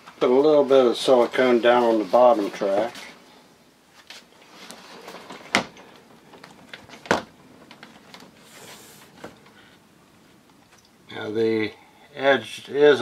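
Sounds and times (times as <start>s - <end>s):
faint rustling: 0.0s - 11.8s
shower door sliding in track: 4.4s - 9.2s.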